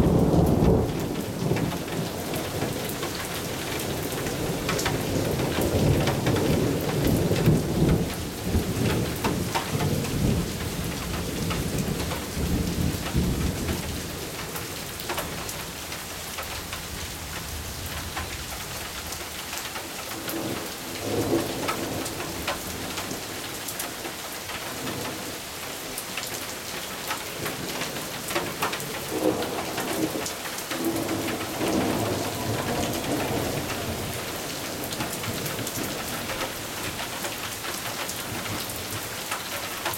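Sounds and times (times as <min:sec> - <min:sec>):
steady rain: 0:00.0 - 0:39.9
rolling thunder: 0:27.4 - 0:37.1.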